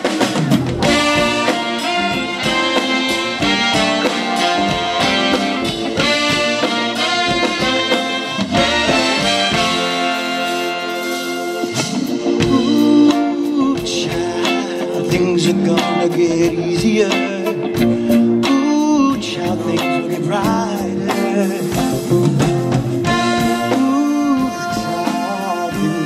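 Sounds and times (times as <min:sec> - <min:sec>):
horn section: 0:00.0 - 0:13.6, 0:22.9 - 0:26.0
drums steady beat: 0:00.0 - 0:26.0
swing band playing: 0:00.0 - 0:26.0.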